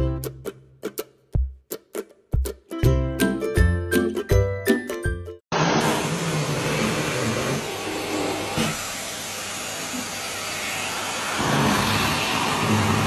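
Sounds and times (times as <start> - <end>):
vacuum cleaner running: 5.5 - 13.0.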